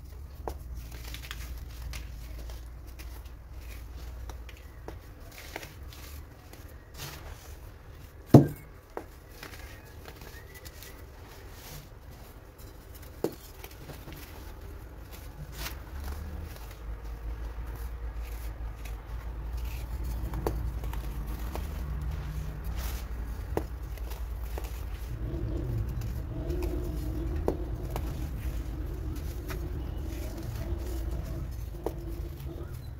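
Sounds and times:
low steady rumble: 14.2s - 32.9s.

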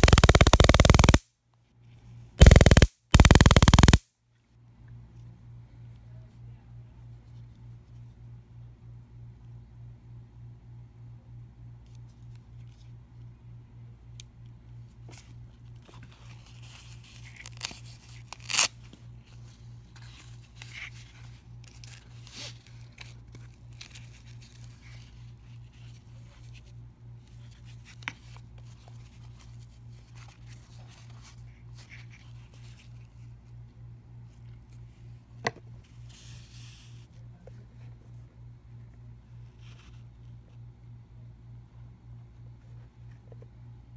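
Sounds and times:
sharp clicks and taps: 0.0s - 1.2s, 2.4s - 4.0s
steady low hum: 0.0s - 1.2s, 1.8s - 43.9s
handling rustling and scraping: 15.0s - 33.6s.

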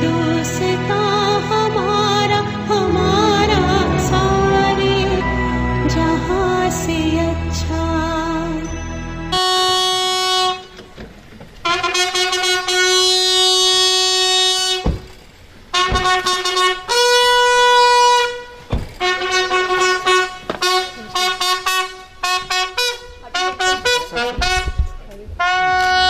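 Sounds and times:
brass band playing: 0.0s - 10.7s.

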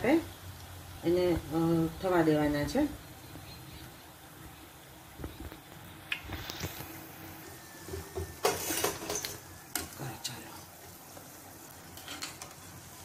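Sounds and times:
food deep-frying in oil: 0.0s - 13.0s
skimmer scraping a pan: 7.7s - 9.5s.

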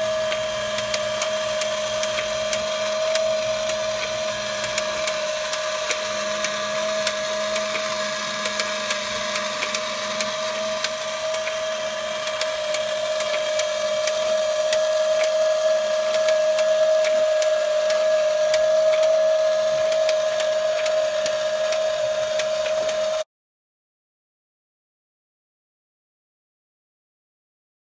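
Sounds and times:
plastic mechanism clicking: 0.0s - 19.2s
electric motor whine: 0.0s - 23.2s.

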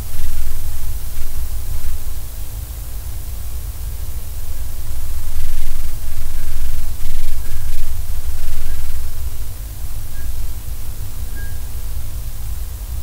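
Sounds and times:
steady hiss: 0.0s - 13.0s
snail scraping glass: 4.5s - 11.7s.

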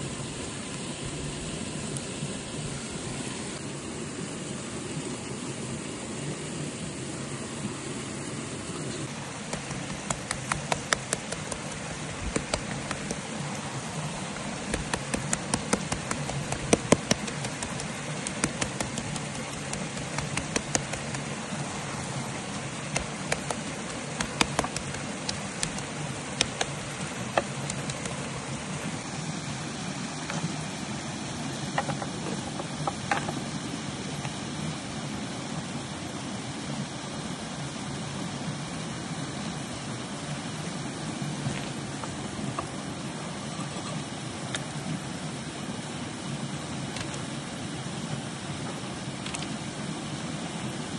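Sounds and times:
steady rushing noise: 0.0s - 50.9s
sharp crackles and pops: 9.4s - 13.3s, 14.3s - 21.3s, 22.8s - 28.2s.

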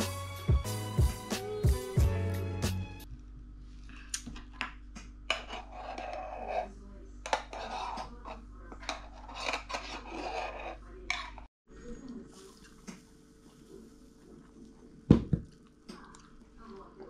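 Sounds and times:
scraping metal jug: 7.4s - 11.5s.

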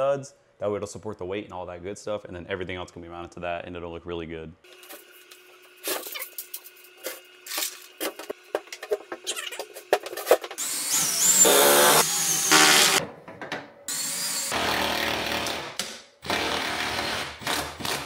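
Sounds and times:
cordless drill driving screws: 10.6s - 13.0s.

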